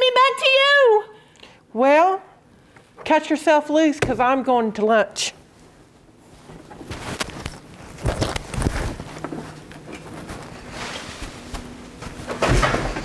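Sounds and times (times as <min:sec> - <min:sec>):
clothing and handbag rustling: 0:05.6 - 0:13.0
shuffling footsteps: 0:05.6 - 0:13.0.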